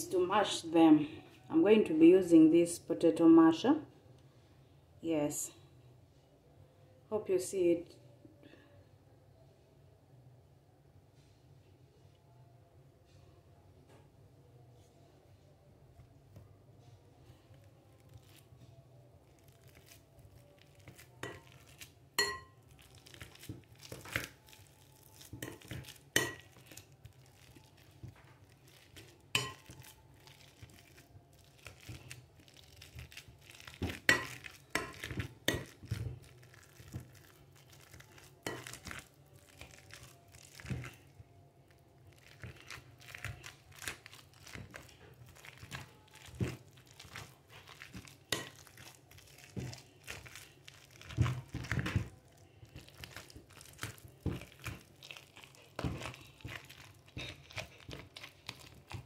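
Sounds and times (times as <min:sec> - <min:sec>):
soft fruit being crushed: 0:17.5 - 0:59.0.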